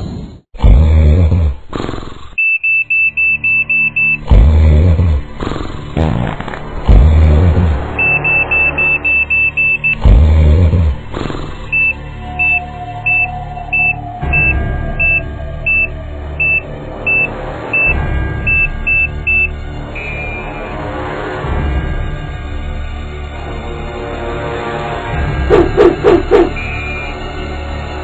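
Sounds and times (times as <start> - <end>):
high electronic beeps: 2.4 - 4.3, 7.9 - 10.0, 11.7 - 20.7, 25.5 - 27.2.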